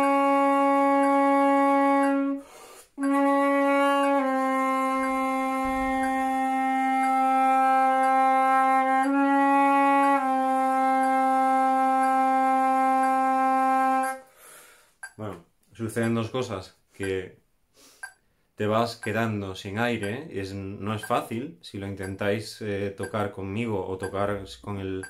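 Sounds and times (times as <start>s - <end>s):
flute playing long low notes: 0.0s - 14.2s
quick breath: 2.4s - 3.0s, 14.3s - 15.0s, 17.7s - 18.5s.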